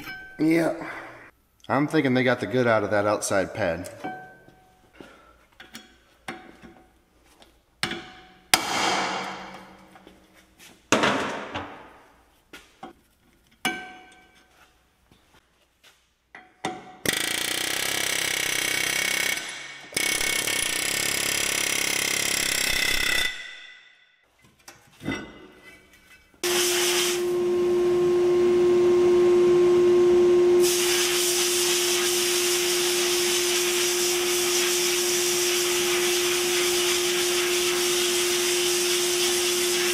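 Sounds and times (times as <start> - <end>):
pneumatic air hammer: 17.0 - 23.9, 30.6 - 39.9
blast air hissing: 26.4 - 27.4, 30.6 - 39.8
vacuum motor hum: 26.4 - 30.8.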